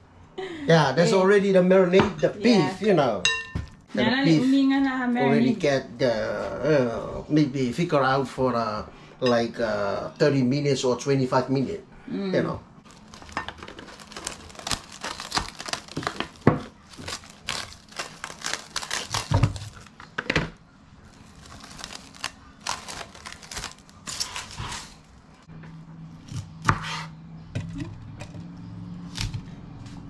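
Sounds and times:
cling wrap crinkling and tearing: 0:12.8 - 0:20.0, 0:21.0 - 0:25.5
knife cutting on wooden board: 0:24.1 - 0:25.0, 0:26.3 - 0:27.2.

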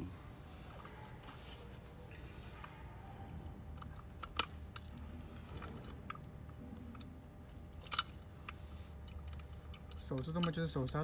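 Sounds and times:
steady low hum: 0:00.0 - 0:11.0
light metal clicks and taps: 0:07.9 - 0:10.7.

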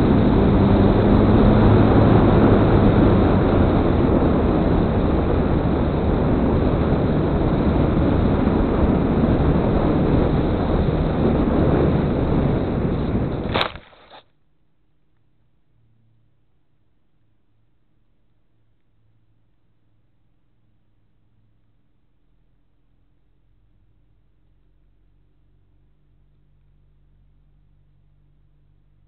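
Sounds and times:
wind rushing over microphone: 0:00.0 - 0:13.8.

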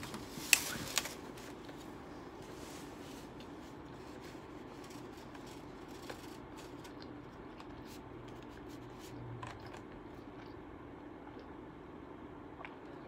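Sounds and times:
low steady hum: 0:00.0 - 0:13.0
close-up chewing: 0:03.3 - 0:11.6.

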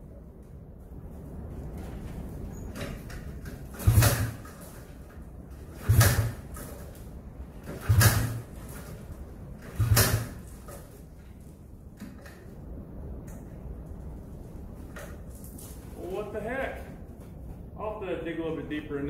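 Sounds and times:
recoil starter rope pulls: 0:02.7 - 0:11.4.

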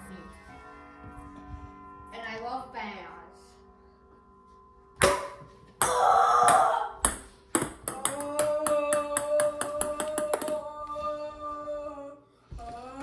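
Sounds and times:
ping pong ball bouncing on hardwood: 0:05.0 - 0:10.6.

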